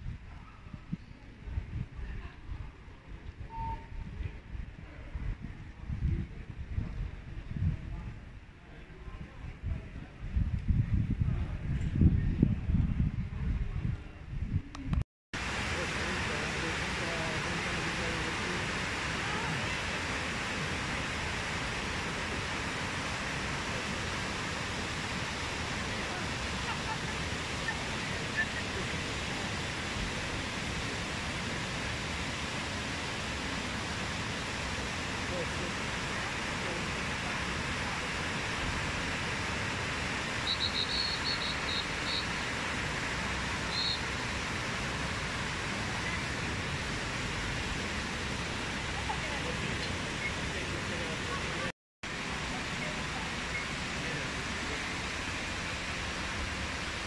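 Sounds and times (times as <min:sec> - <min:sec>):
fountain water cascading: 0:15.4 - 0:57.0.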